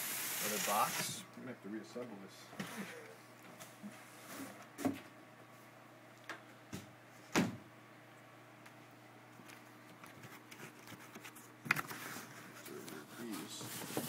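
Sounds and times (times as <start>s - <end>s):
cardboard and foam rustling: 10.1s - 14.0s.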